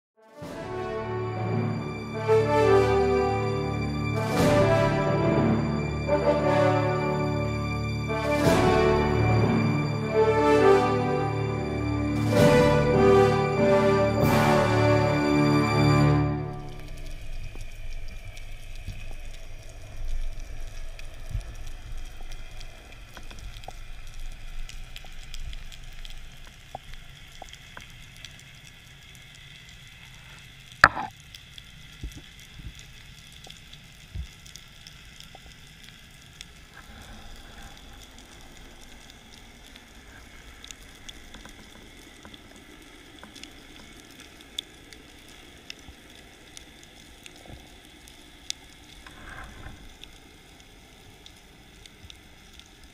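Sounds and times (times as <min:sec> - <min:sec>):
rush of moving water: 0:00.4 - 0:52.9
underwater crackle of clicks: 0:16.6 - 0:52.9
sharp knock: 0:30.8 - 0:31.1.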